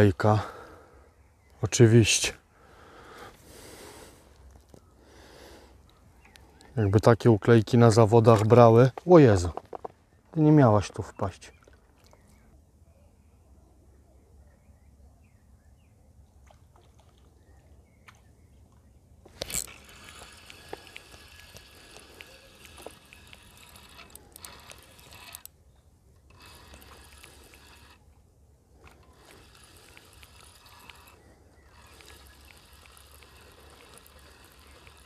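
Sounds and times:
fishing reel gear rattle: 0:19.3 - 0:25.6, 0:26.2 - 0:28.0, 0:28.8 - 0:35.0.

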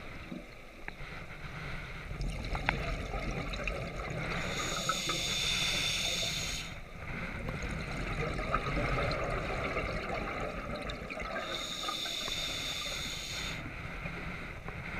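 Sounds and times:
exhaled bubbles gurgling: 0:02.0 - 0:13.7
regulator hissing with inhalation: 0:04.3 - 0:06.8, 0:11.4 - 0:13.7.

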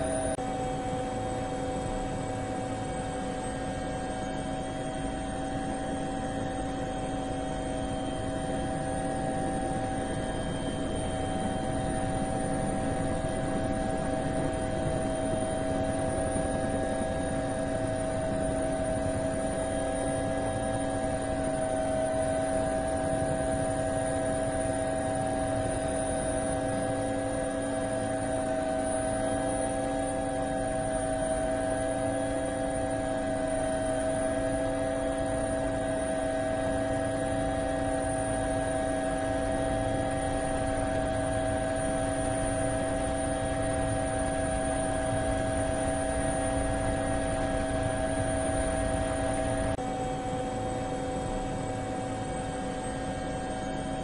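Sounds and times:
drone propellers whining: 0:00.0 - 0:49.8.

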